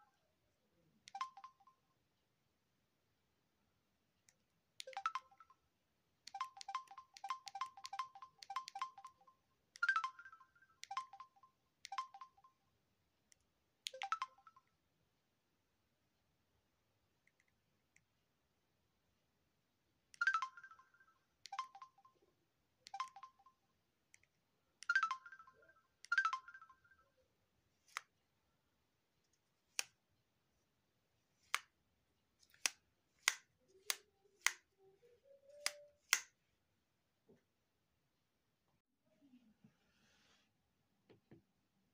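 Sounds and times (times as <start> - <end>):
phone key beeps: 1.1 - 1.8, 4.8 - 5.5, 6.3 - 12.5, 21.5 - 22.2, 22.9 - 23.6.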